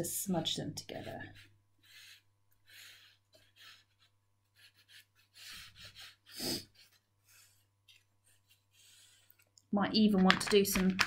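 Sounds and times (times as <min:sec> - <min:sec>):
chalk pastel scratching paper: 0:00.8 - 0:09.4.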